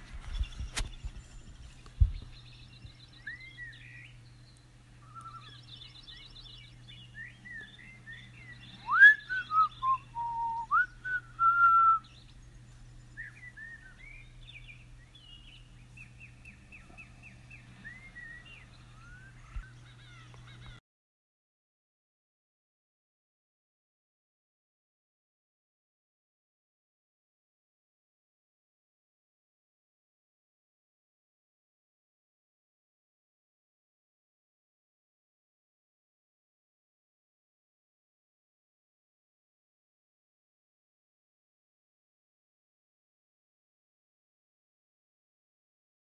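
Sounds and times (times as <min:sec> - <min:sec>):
birds chirping and trilling: 0:00.0 - 0:20.8
faint low hum: 0:00.0 - 0:20.8
person whistling a tune: 0:08.9 - 0:12.0.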